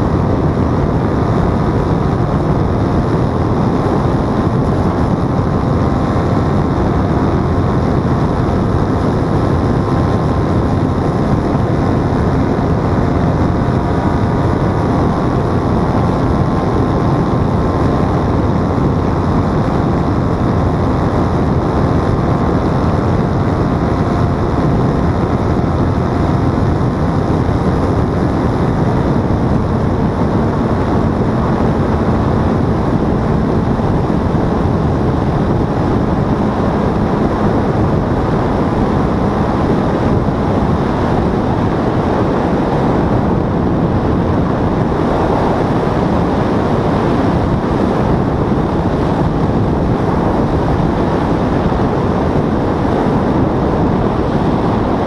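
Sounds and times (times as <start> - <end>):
paramotor engine and propeller: 0.0 - 55.0
wind buffeting microphone: 0.0 - 55.0.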